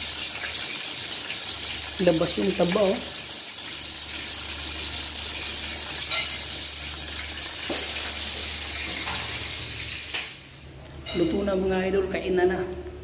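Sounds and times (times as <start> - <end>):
fish sizzling in hot oil: 0.0 - 10.6.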